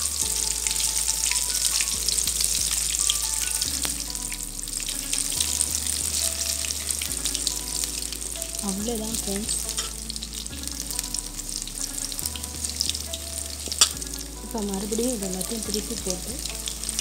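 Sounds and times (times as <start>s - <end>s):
hot oil sizzling and popping: 0.0s - 17.0s.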